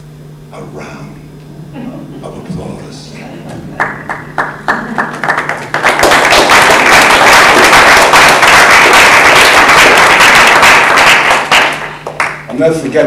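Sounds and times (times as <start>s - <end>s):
audience applause: 3.8s - 12.5s.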